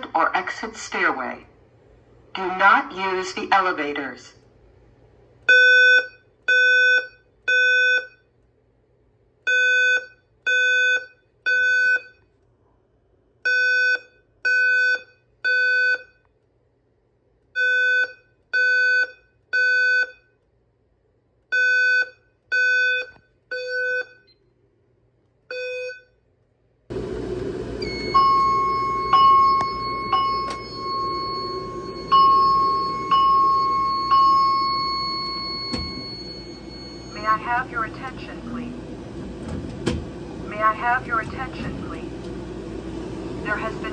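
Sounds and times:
alarm beeps: 5.5s - 8.3s, 9.5s - 12.2s, 13.5s - 16.2s, 17.6s - 20.3s, 21.5s - 24.4s, 25.5s - 26.2s, 27.8s - 38.4s
room noise: 19.3s - 43.9s
steady alarm tone: 26.9s - 39.1s.

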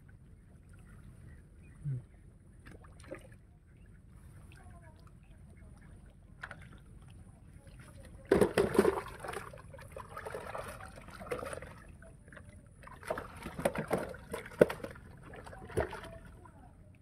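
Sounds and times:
fish splashing in tub: 8.2s - 12.0s, 12.8s - 16.4s.

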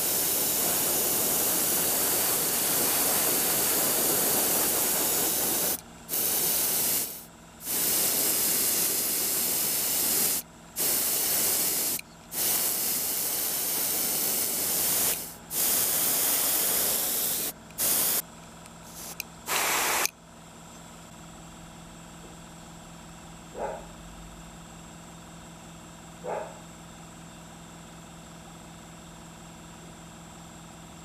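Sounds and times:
airbrush spraying hiss: 0.0s - 18.2s, 18.9s - 20.1s.

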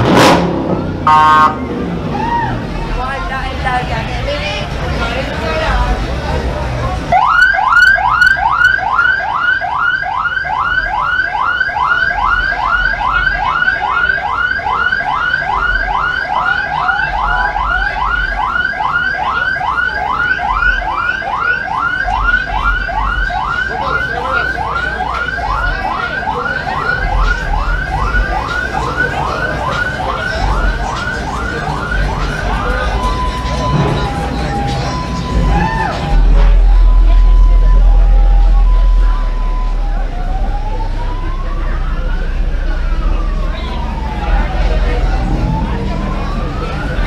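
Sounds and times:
vehicle siren yelping: 0.1s - 2.8s, 7.1s - 47.0s.

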